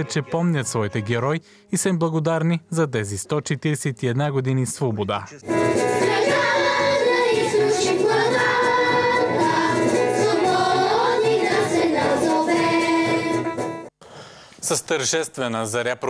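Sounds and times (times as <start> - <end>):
children singing into microphones: 5.9 - 13.4.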